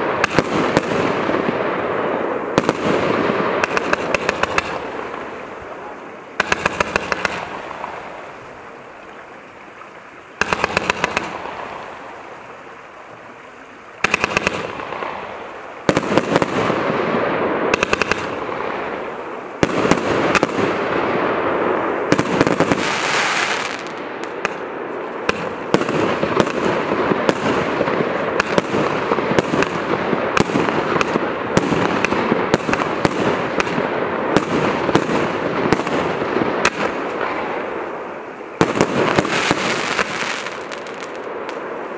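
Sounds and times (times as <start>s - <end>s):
sharp firework reports: 0.0s - 8.8s, 10.4s - 12.2s, 14.0s - 41.9s
firework launches and bursts: 10.3s - 12.9s, 14.0s - 41.9s
firework hissing rush: 21.9s - 24.5s, 36.6s - 41.9s.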